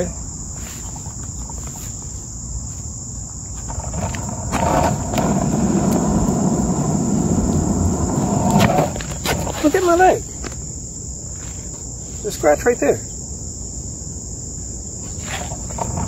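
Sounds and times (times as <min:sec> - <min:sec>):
insect chorus drone: 0:00.0 - 0:16.0
low rumble on microphone: 0:03.5 - 0:09.6.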